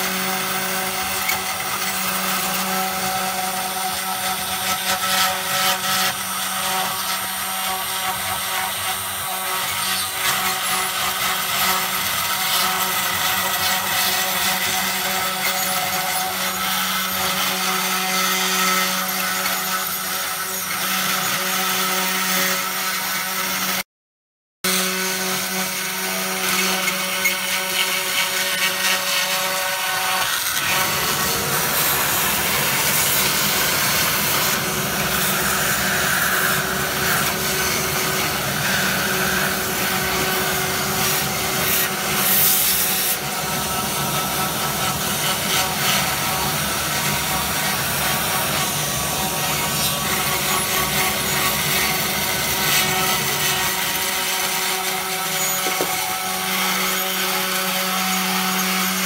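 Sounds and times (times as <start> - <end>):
router spindle cutting wood: 0.0 - 23.8, 24.6 - 59.0
vacuum cleaner whine: 55.3 - 56.2.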